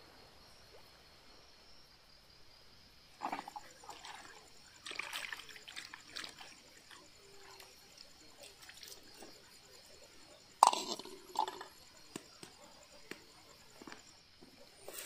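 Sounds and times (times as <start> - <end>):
water dripping and splashing: 3.2 - 10.8.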